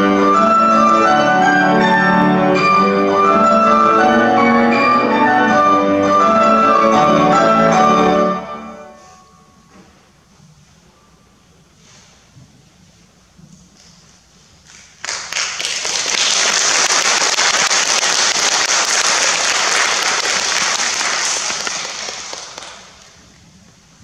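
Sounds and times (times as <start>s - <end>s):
audience applauding: 15.0s - 23.2s.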